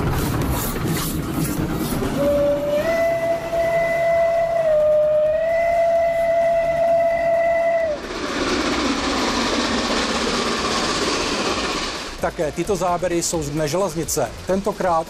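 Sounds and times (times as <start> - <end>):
steam locomotive rushing: 0.0 - 15.0
steam whistle blast: 2.2 - 8.0.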